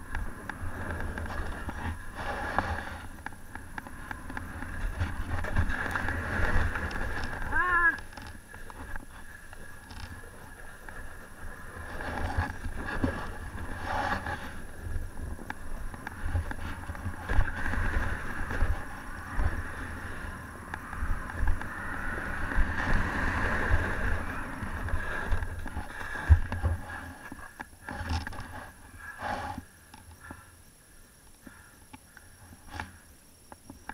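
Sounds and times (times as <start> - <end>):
skis sliding on snow: 0.0 - 20.5, 21.1 - 27.6
wind buffeting microphone: 0.0 - 27.1.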